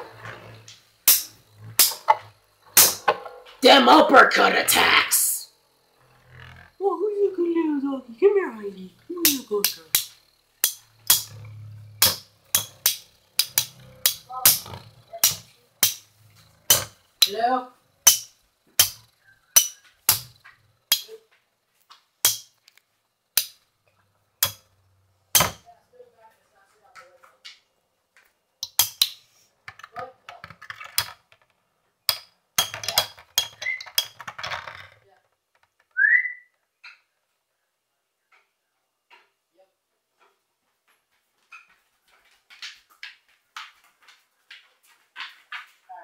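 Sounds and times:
low whir of spinning tops: 0.0s - 3.6s, 8.1s - 20.7s
spinning tops clashing metal clacks: 9.6s - 16.1s
spinning tops clashing clicks: 32.1s - 34.8s.

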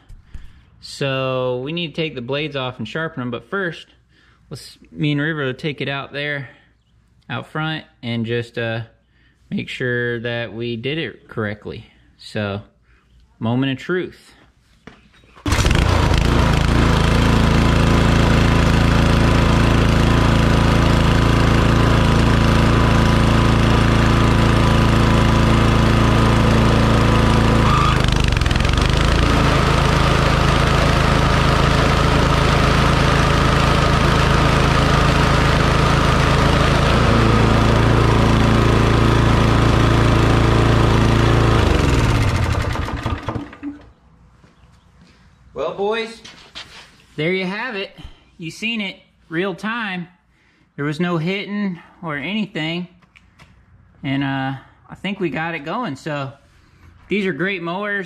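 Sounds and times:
lawn mower engine running: 15.4s - 44.0s.

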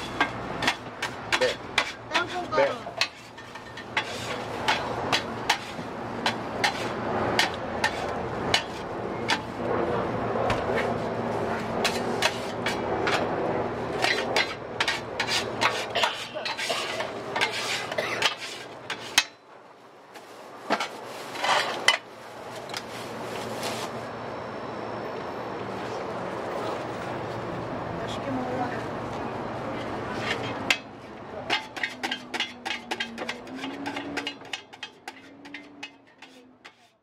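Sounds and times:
metal scrapers scraping a steel griddle: 0.0s - 9.6s, 10.7s - 19.4s, 20.7s - 22.1s, 30.1s - 37.0s.

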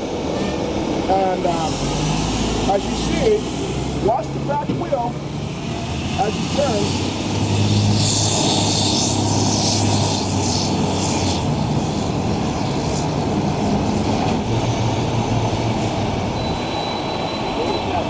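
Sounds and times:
diesel engine running: 0.0s - 18.0s
hiss: 6.2s - 13.1s.

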